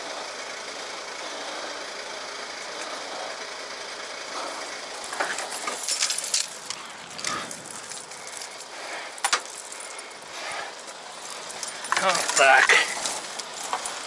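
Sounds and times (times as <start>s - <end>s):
snow chains clinking and rattling: 4.4s - 14.0s.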